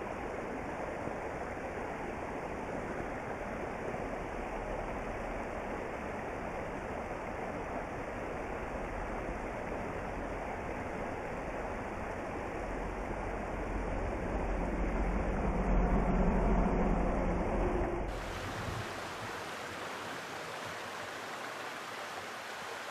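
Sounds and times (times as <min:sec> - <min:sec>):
stream running over rocks: 0:00.0 - 0:15.4, 0:18.1 - 0:22.9
low rumble: 0:12.8 - 0:18.9.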